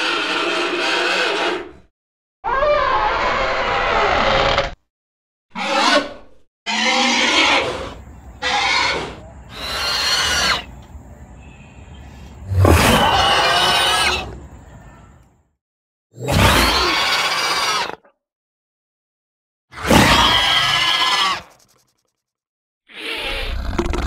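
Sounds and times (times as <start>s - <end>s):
dinosaur roars and screeches: 0.0s - 4.8s, 5.5s - 10.7s, 12.4s - 14.6s, 16.2s - 18.1s, 19.7s - 21.6s, 22.9s - 24.0s.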